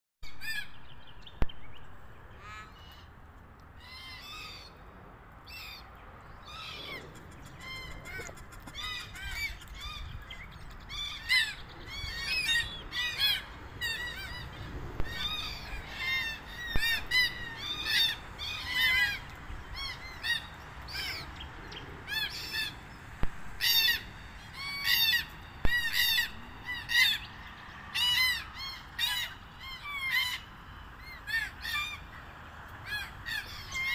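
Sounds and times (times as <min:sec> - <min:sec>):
cockatoos giving harsh calls: 0:06.5 - 0:21.4, 0:22.0 - 0:32.2.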